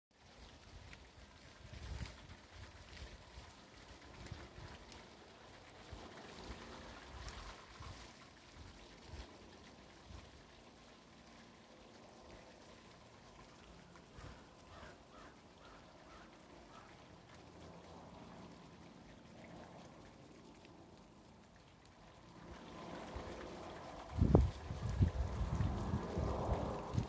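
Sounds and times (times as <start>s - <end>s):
rainwater trickling down rain chain: 0.1s - 27.0s
wind buffeting microphone: 24.0s - 27.0s.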